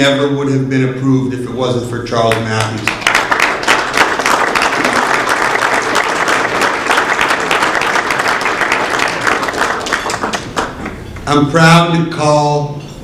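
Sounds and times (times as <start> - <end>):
audience applauding: 2.7 - 11.0.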